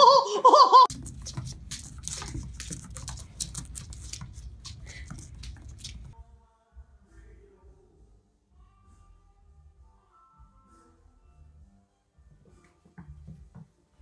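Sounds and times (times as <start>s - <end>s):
kitten claws skittering on wood: 0.9s - 6.2s.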